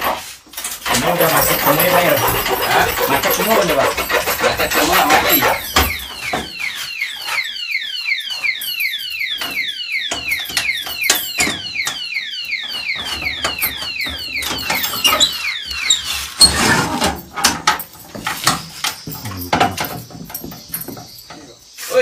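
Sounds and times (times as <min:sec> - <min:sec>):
padlocks clicking and rattling: 0:00.0 - 0:21.8.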